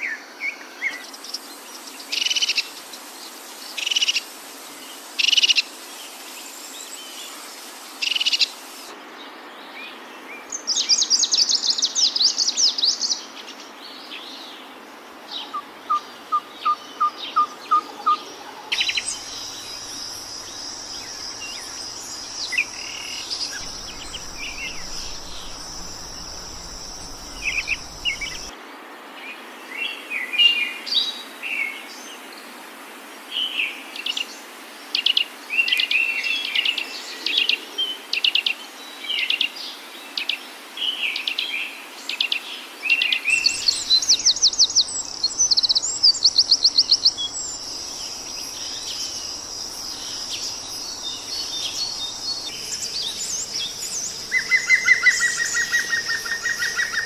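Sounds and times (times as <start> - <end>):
birds chirping: 15.5 - 28.5, 43.4 - 57.0
high insect drone: 18.7 - 28.5, 43.4 - 57.0.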